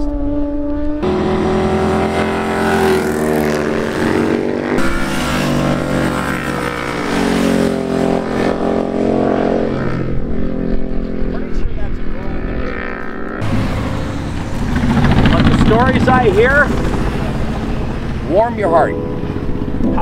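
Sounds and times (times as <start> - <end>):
motorcycle engines at speed: 0.0 - 20.0.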